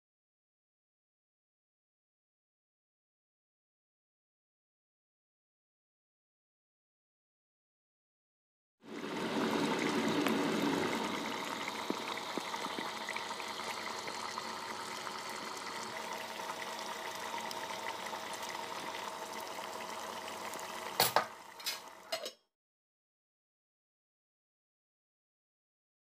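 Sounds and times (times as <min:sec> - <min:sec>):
gravy bubbling: 0:08.9 - 0:22.1.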